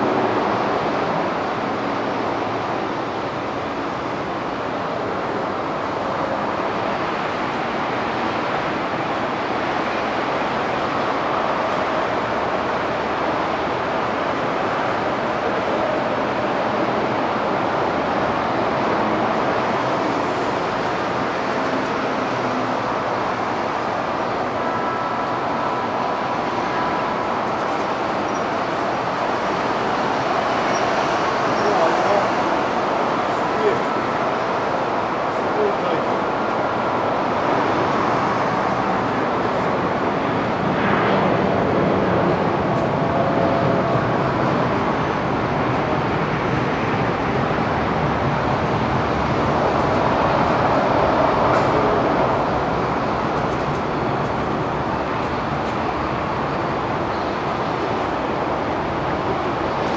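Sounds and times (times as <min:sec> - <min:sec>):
aircraft engines roaring: 0:00.0 - 0:59.9
jet turbines idling: 0:00.0 - 0:59.9.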